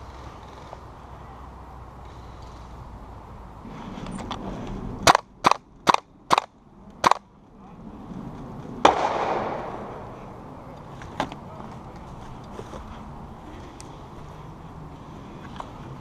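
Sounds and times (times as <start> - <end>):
airsoft rifle shots: 5.0 - 7.2, 8.8 - 10.2.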